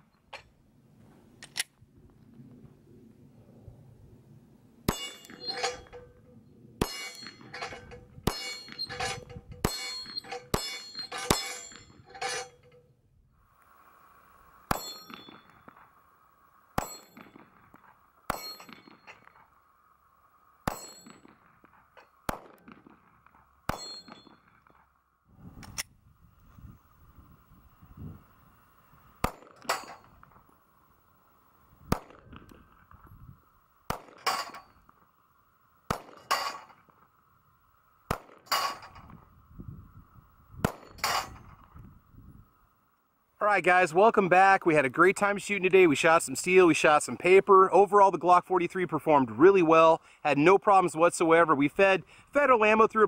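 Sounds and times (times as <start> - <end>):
steel targets clanging: 4.9 - 13.0, 14.6 - 16.0, 16.8 - 19.6, 20.6 - 22.2, 23.7 - 24.6, 29.2 - 30.3, 33.9 - 34.9, 35.9 - 36.9, 38.1 - 39.2, 40.7 - 41.6
pistol shots: 20.6 - 24.7, 29.2 - 30.2, 31.9 - 32.6, 33.9 - 34.5, 35.9 - 36.6, 38.1 - 38.8, 40.6 - 41.1.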